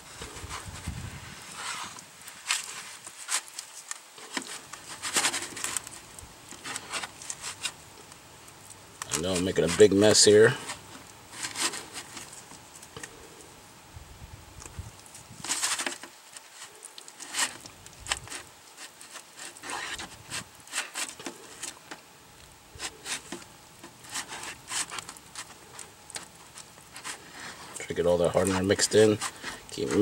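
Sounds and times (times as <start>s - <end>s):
brush stirring sticky putty: 26.2s - 30.0s.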